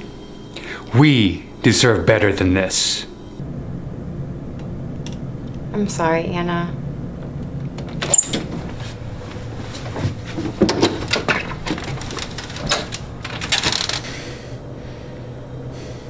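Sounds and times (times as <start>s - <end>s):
front door clicks and rattles: 7.6s - 8.7s, 9.9s - 14.2s.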